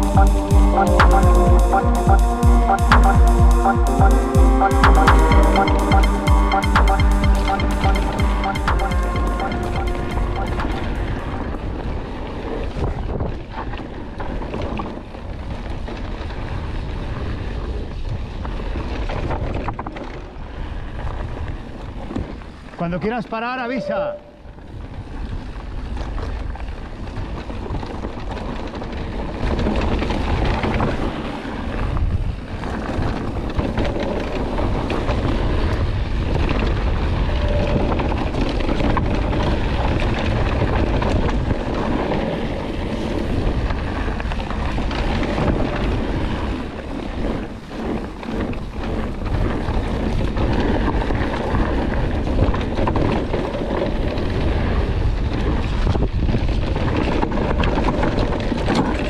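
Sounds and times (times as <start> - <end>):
mountain bike rumbling on dirt trail: 11.2 - 22.8, 24.6 - 59.0
wind buffeting microphone: 24.5 - 59.0.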